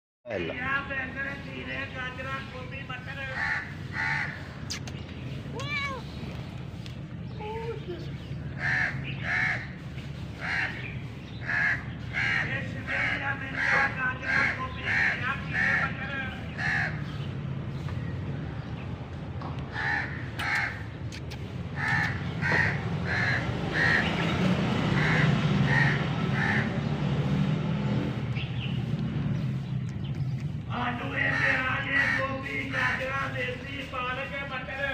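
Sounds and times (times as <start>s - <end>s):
crow cawing: 3.3s - 4.5s, 8.6s - 9.8s, 10.4s - 10.8s, 11.4s - 15.9s, 16.6s - 17.1s, 19.7s - 20.8s, 21.8s - 24.2s, 25.0s - 26.8s.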